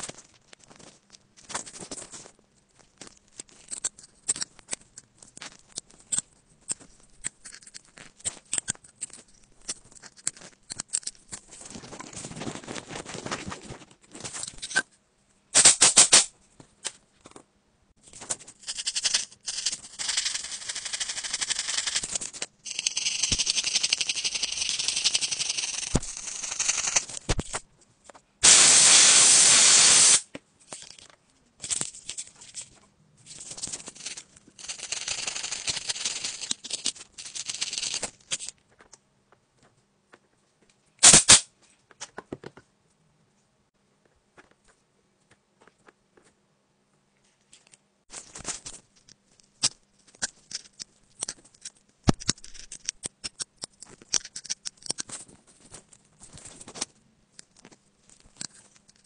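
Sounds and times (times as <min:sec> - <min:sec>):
loud steady hiss: 0:15.6 - 0:16.3, 0:28.4 - 0:30.3, 0:41.0 - 0:41.5.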